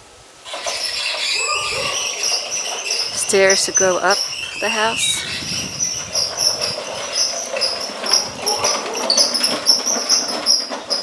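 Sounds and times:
high-pitched chirping: 1.2 - 6.6.

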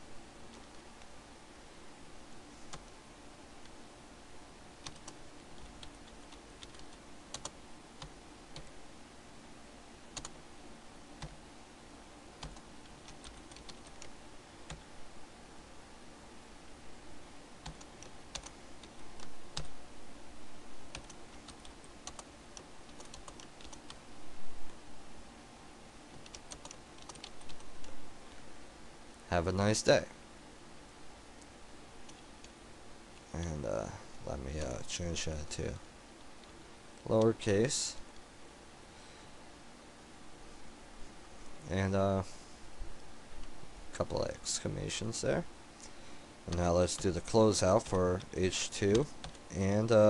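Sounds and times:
faint steady hum: 0.0 - 50.0
typing on a keyboard: 4.8 - 8.7, 12.4 - 14.1, 20.9 - 24.0, 26.2 - 27.7.

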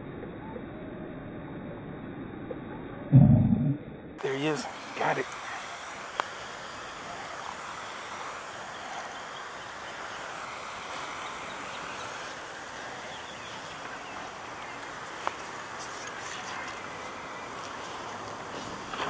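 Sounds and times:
outdoor background hiss: 4.2 - 19.0.

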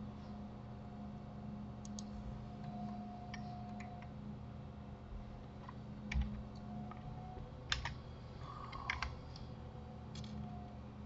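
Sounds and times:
low steady hum: 0.0 - 11.0
computer keyboard key clicks: 7.7 - 8.0, 8.7 - 9.2.

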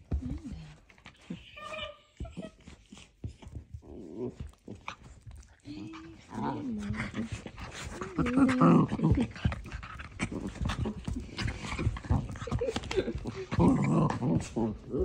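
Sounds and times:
paws scrabbling on blanket: 0.0 - 15.0
dog panting: 0.1 - 15.0
dog growling playfully: 3.8 - 15.0.

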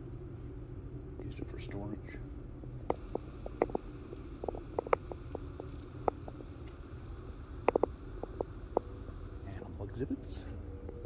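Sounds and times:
low room rumble: 0.0 - 11.0
faint clicks and taps: 2.8 - 6.8, 7.6 - 8.9.

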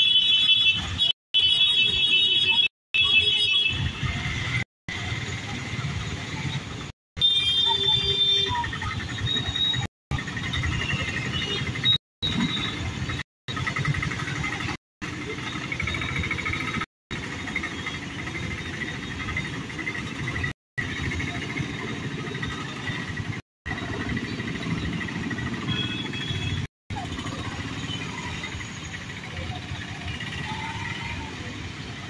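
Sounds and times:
voices: 2.4 - 32.0
motorcycles passing: 7.6 - 32.0.

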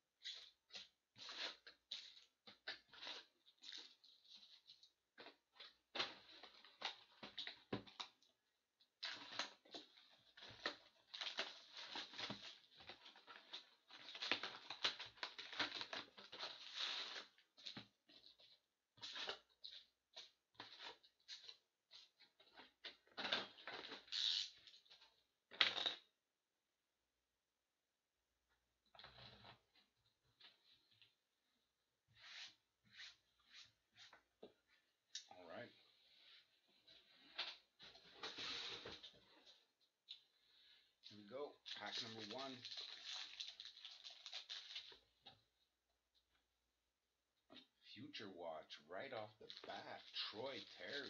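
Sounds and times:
foil card packs crinkling: 9.0 - 17.3, 41.7 - 45.0, 49.5 - 51.0.

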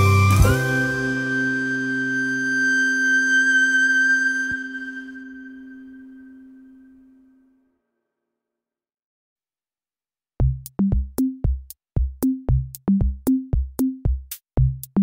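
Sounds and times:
drum machine beat: 10.4 - 15.0.

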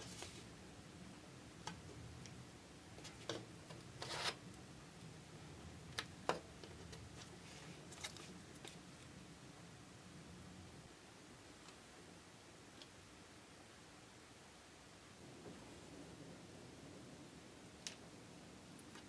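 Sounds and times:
paper scraping: 4.0 - 4.4.

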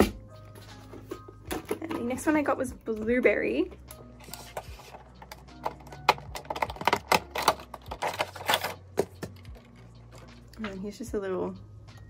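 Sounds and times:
plastic case clicking and scraping: 4.2 - 10.4.

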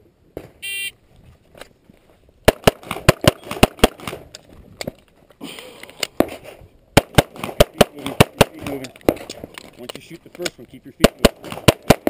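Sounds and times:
handgun shots: 7.0 - 9.5, 11.0 - 12.0.

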